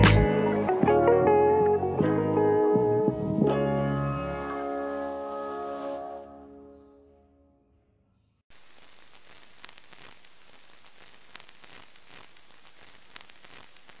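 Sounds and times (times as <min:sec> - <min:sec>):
background music: 0:00.0 - 0:07.2
crackles and pops: 0:08.5 - 0:14.0
static hiss: 0:08.5 - 0:14.0.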